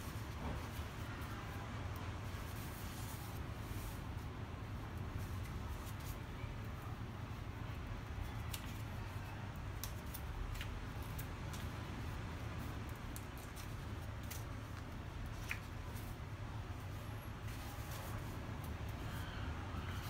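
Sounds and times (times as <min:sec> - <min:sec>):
low steady hum: 0:00.0 - 0:20.0
book pages turning: 0:08.3 - 0:16.2, 0:16.9 - 0:19.0.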